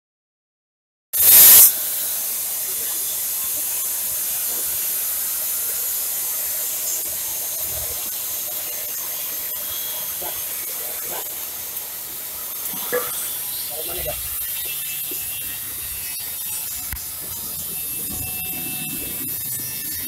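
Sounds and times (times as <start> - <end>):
hiss of air and tumbling beans: 1.2 - 15.2
coffee roaster running: 1.2 - 20.0.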